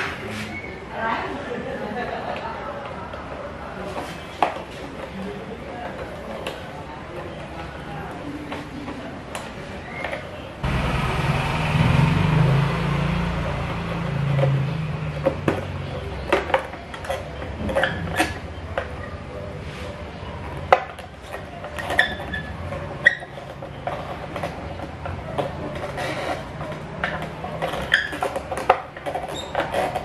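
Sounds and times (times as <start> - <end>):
low rumbling noise: 10.6 - 15.2.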